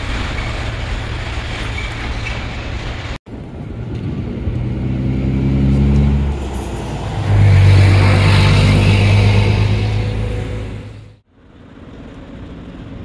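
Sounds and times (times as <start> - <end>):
heavy machinery engine revving: 3.9 - 11.2.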